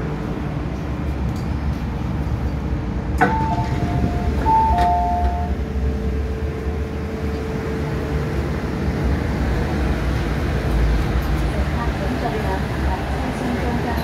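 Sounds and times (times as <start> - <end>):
stopped train rumble: 0.0 - 14.0
two-note electronic door chime: 3.2 - 5.6.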